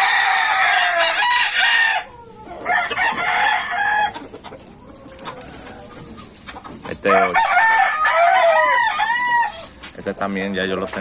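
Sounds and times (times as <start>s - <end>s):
rooster crowing: 0.0s - 4.3s, 7.0s - 9.7s.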